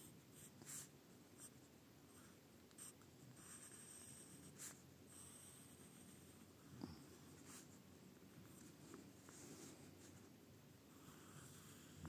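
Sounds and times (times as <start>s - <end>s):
pencil scratching on paper: 2.1s - 6.5s, 11.0s - 12.0s.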